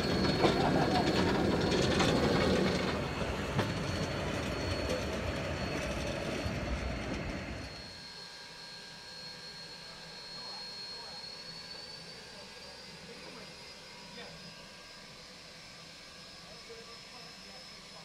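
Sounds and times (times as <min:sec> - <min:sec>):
wheels clacking on rail track: 0:00.0 - 0:07.4.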